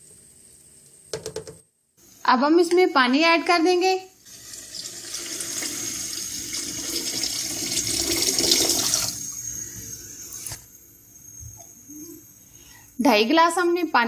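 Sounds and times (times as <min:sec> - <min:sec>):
water pouring into a pan: 0:04.2 - 0:09.2.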